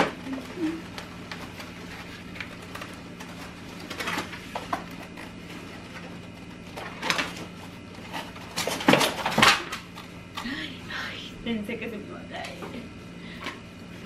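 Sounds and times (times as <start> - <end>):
steady low hum: 0.0 - 14.0
packaging rustling and scraping: 0.2 - 9.8.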